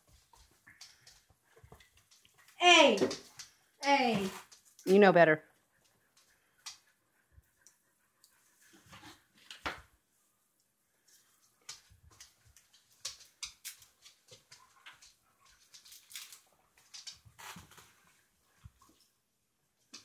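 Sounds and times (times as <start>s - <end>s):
dogs moving about: 0.0s - 4.9s, 11.0s - 19.1s.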